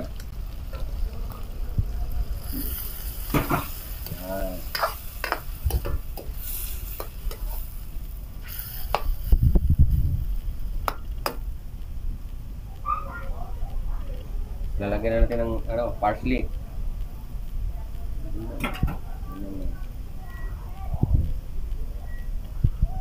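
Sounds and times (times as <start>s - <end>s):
food sizzling in a wok: 0.0s - 13.2s
metal ladle scraping a wok: 2.4s - 9.2s.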